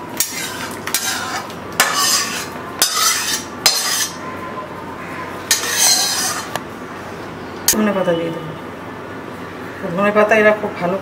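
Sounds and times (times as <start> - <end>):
spatula scraping metal pan: 0.2 - 4.2, 5.4 - 6.6.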